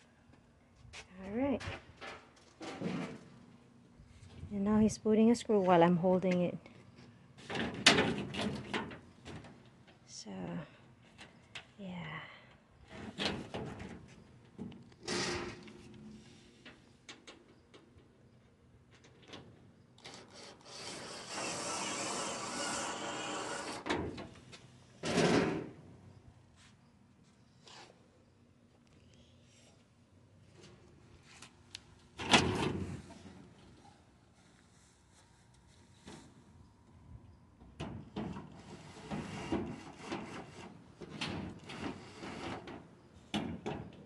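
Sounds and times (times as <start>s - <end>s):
thump and rustle of metal: 1.6s - 3.4s, 7.4s - 9.8s, 12.9s - 17.9s, 23.8s - 25.8s, 32.2s - 33.7s, 37.6s - 44.0s
electric screwdriver driving screw: 20.1s - 23.8s.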